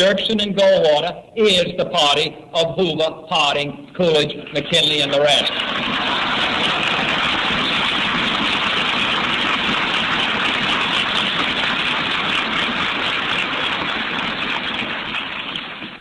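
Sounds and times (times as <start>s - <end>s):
audience applauding: 4.6s - 16.0s.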